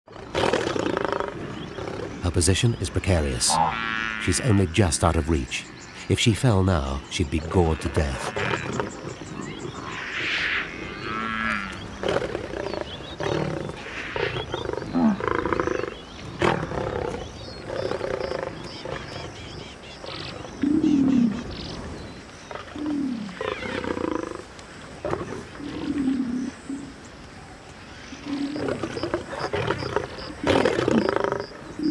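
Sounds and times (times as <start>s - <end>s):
lioness snarling and growling: 0.1s - 2.2s, 8.2s - 21.6s, 28.2s - 31.9s.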